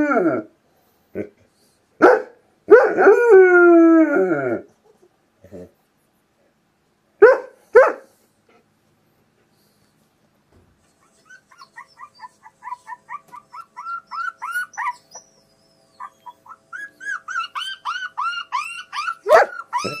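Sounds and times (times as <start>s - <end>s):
dog barking: 2.0s - 3.0s, 7.2s - 8.1s, 19.2s - 20.0s.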